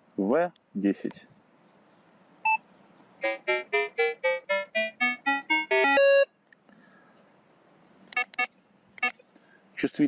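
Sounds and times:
metal detector beeps rising in pitch: 0:05.8 - 0:06.3.

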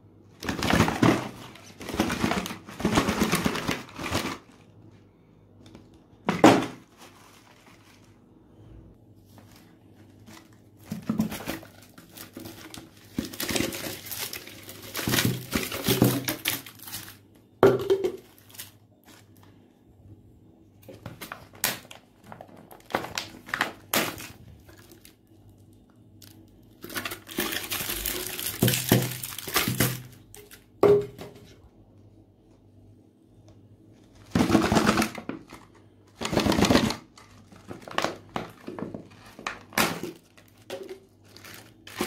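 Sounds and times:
cellophane wrappers crinkling: 0:00.4 - 0:04.8, 0:06.8 - 0:08.2, 0:09.3 - 0:17.4, 0:18.1 - 0:19.6, 0:21.0 - 0:30.8, 0:34.1 - 0:42.0.

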